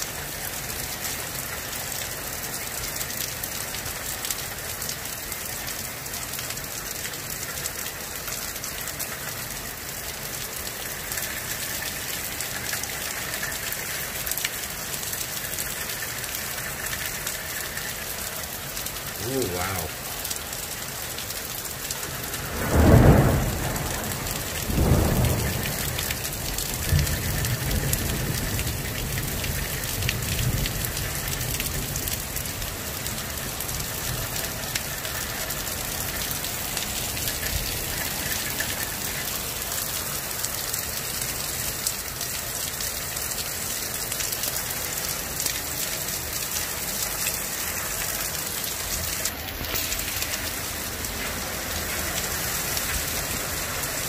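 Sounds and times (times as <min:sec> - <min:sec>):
heavy rain pouring: 0:00.0 - 0:54.0
thunder claps: 0:22.5 - 0:28.5.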